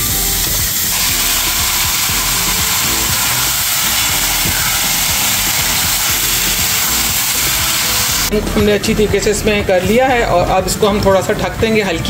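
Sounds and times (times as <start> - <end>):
chicken sizzling in a pan: 0.0 - 8.4
background music: 0.0 - 12.0.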